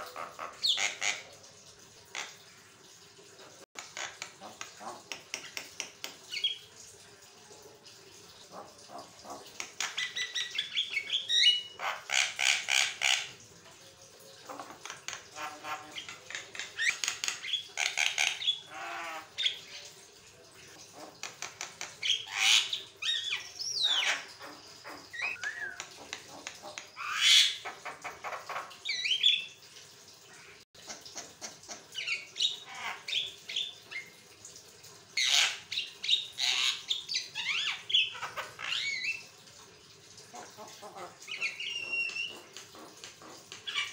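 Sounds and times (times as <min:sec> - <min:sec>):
bird chattering and whistling: 0:25.1 - 0:25.9.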